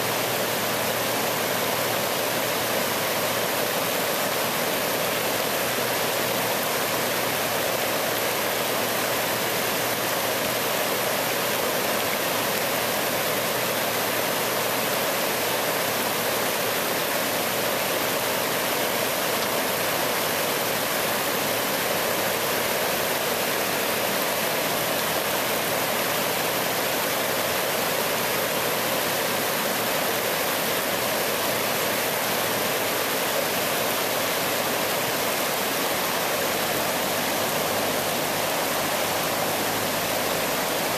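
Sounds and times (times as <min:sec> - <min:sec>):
white water rushing over rapids: 0:00.0 - 0:40.9.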